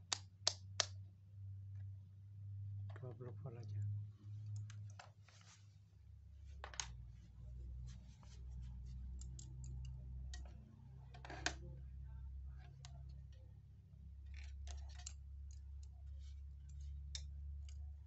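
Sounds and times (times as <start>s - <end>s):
low steady hum: 0.0s - 18.0s
multimeter clicks and taps: 9.1s - 10.6s.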